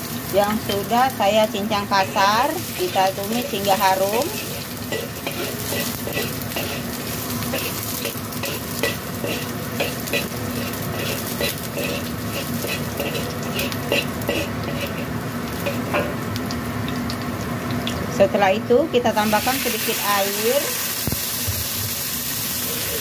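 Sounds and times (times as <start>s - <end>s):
garlic sizzling in hot oil: 0.0s - 23.0s
metal spatula scraping wok: 1.8s - 16.2s.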